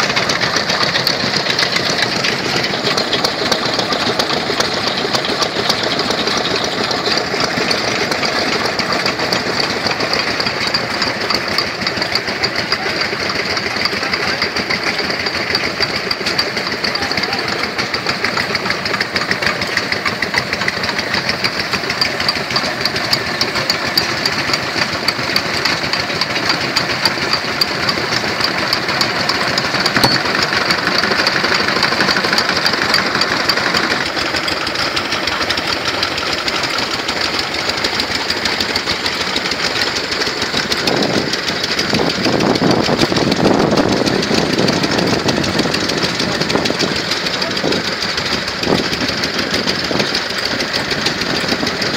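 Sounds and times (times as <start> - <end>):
stationary engines knocking: 0.0 - 51.9.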